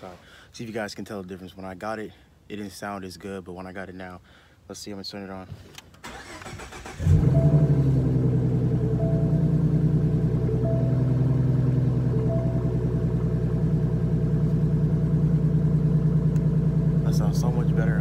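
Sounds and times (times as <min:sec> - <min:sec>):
car engine starting: 0:06.0 - 0:18.0
car engine idling: 0:06.1 - 0:18.0.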